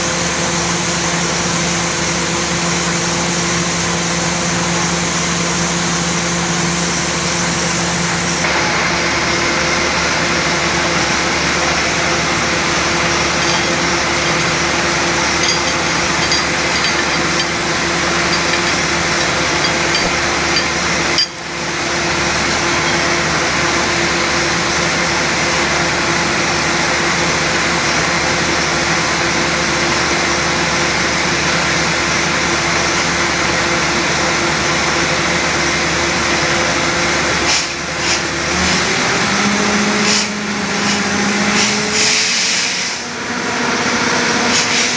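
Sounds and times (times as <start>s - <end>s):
drilling rig and compressor drone: 0.0s - 44.9s.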